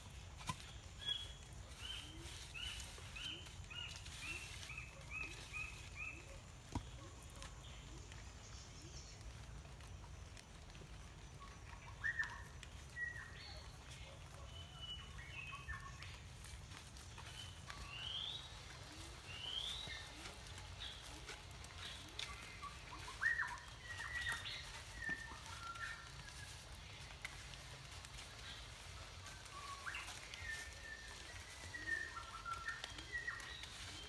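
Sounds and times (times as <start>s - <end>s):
birds chirping and whistling: 0.6s - 7.0s, 14.5s - 34.0s.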